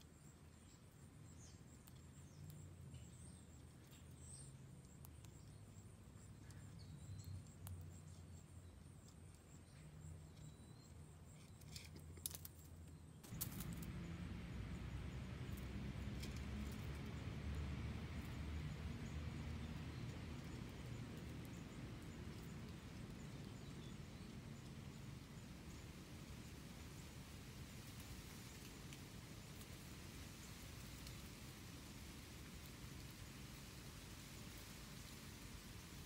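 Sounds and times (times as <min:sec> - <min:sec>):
faint chirps and clicks: 0:00.0 - 0:26.6, 0:27.8 - 0:29.9, 0:30.5 - 0:31.3
low steady rumble: 0:13.2 - 0:27.8
steady hiss: 0:13.2 - 0:36.0.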